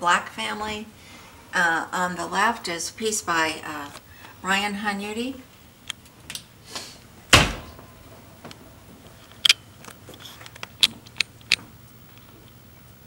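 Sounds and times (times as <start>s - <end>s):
dull thump: 7.3s - 8.0s.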